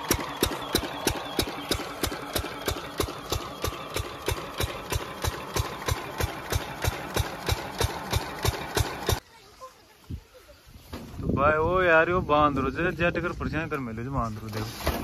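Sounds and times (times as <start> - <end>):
diesel engine running: 0.0 - 9.2.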